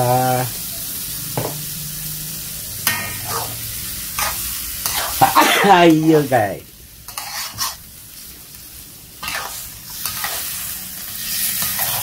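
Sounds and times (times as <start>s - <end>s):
shellfish sizzling in a wok: 0.0s - 12.0s
metal spatula scraping a pan: 2.8s - 5.4s, 7.1s - 7.9s, 9.2s - 12.0s.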